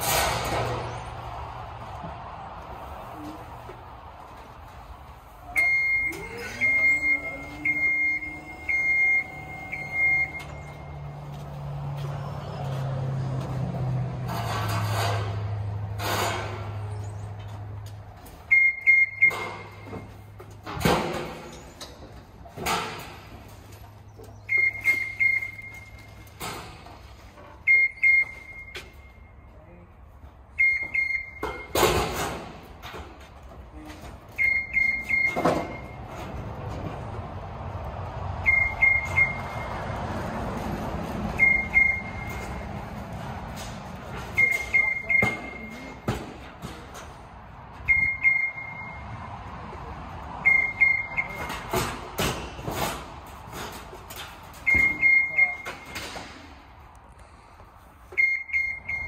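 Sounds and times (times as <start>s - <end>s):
steel panels banging and clattering: 0.0s - 1.2s, 13.9s - 16.9s, 19.2s - 25.3s
lift alarm beeping: 5.5s - 11.4s, 18.4s - 20.4s, 24.3s - 29.5s, 30.5s - 32.2s, 34.3s - 36.3s, 38.4s - 39.9s, 41.3s - 43.0s, 43.6s - 46.2s, 47.7s - 49.2s, 50.4s - 51.9s, 54.6s - 56.3s, 58.0s - 59.0s.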